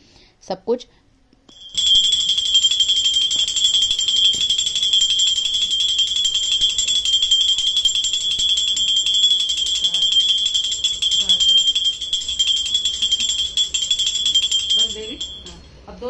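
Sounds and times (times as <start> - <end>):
brass hand bell ringing: 1.5 - 15.8.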